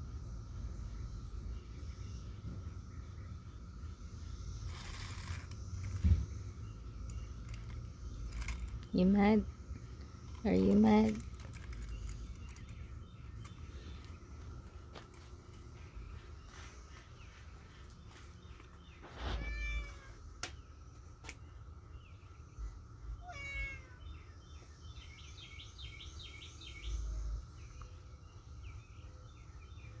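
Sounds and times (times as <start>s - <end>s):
cat meowing: 19.4s - 20.2s, 23.2s - 24.0s.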